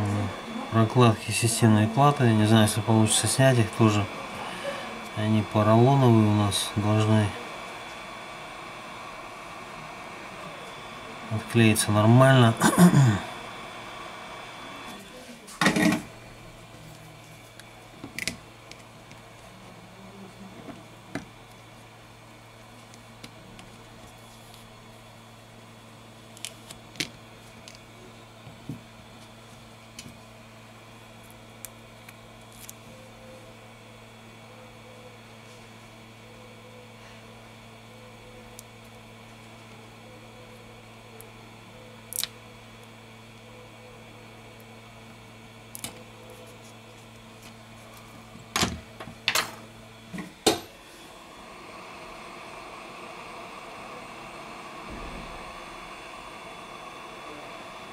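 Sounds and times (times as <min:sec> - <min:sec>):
steady low hum: 0:00.0 - 0:57.9
hot air gun hissing: 0:50.4 - 0:57.9.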